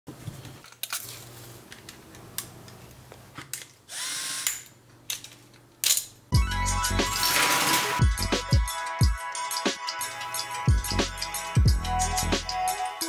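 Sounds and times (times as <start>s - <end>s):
camera motor whir: 3.9s - 4.6s.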